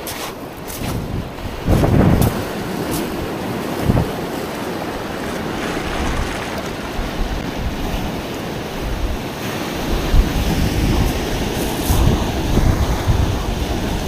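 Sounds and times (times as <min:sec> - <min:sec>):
sea surf washing onto beach: 0:00.0 - 0:14.0
wind buffeting microphone: 0:00.0 - 0:14.0.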